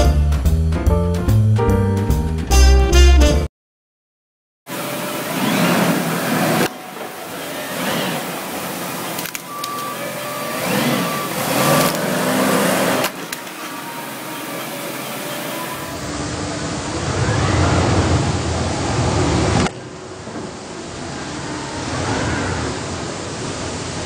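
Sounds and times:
lift truck motor whine: 4.7 - 20.0
steady mechanical noise: 4.7 - 24.0.

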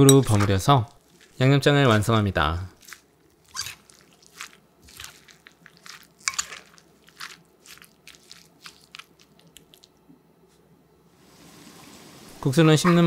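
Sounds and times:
spoon tossing wet salad in bowl: 0.0 - 9.9.

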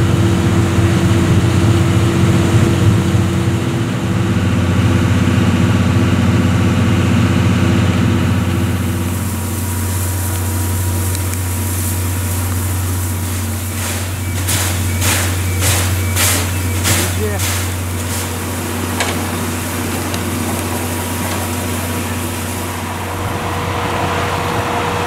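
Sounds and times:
railway engine idling: 0.0 - 25.0
hissing bursts: 8.6 - 23.2.

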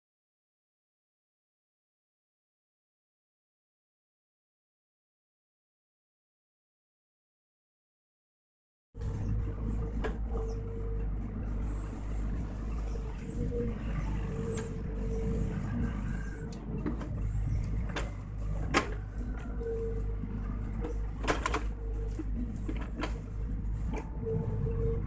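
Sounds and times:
excavator diesel engine: 9.0 - 25.0
hydraulic whine: 9.0 - 25.0.

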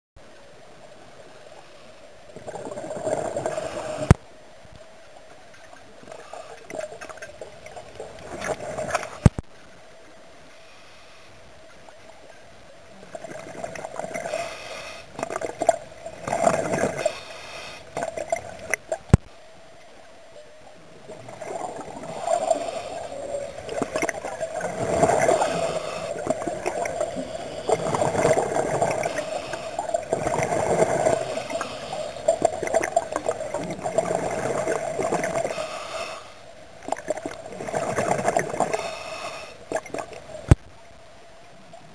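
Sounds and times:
scuba regulator bubbles gurgling: 2.3 - 4.2, 13.0 - 19.2, 21.0 - 36.2, 36.8 - 40.6
steady hum: 12.8 - 41.9.

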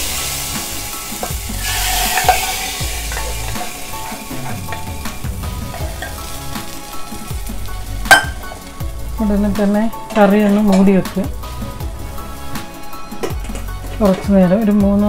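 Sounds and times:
tempering sizzling in curry: 0.0 - 15.0
spatula scraping and tapping pan: 1.2 - 5.1.

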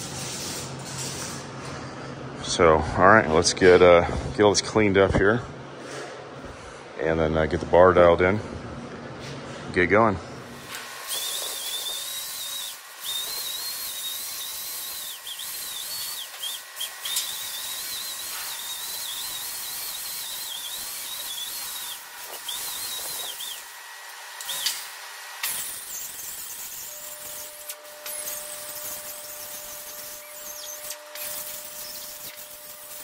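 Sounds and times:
pneumatic grinder whine: 10.5 - 33.0
air hiss: 10.7 - 23.7, 24.4 - 33.0.

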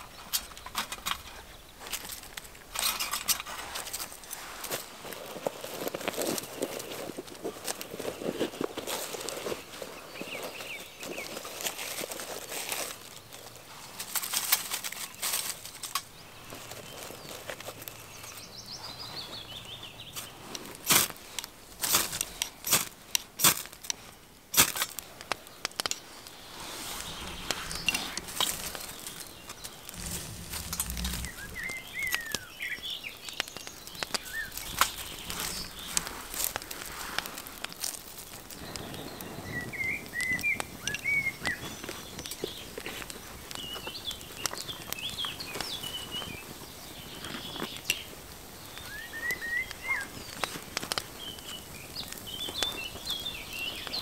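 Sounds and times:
kindling crackling: 0.0 - 18.4, 19.5 - 54.0
songbirds chirping: 0.0 - 54.0
fire steel scraping strikes: 29.9 - 32.2.

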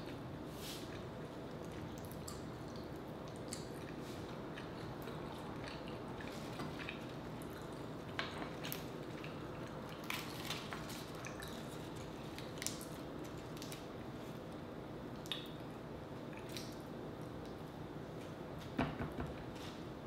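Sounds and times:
faint steady hum: 0.0 - 20.0
chewing: 0.8 - 13.8.

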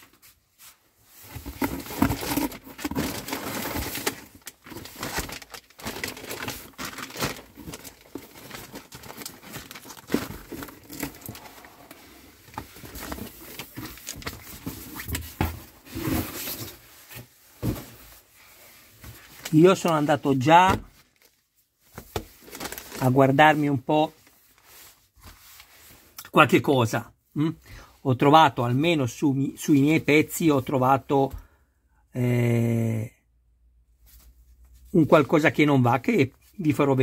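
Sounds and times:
plastic bags crinkling: 1.4 - 14.8, 19.2 - 24.7.

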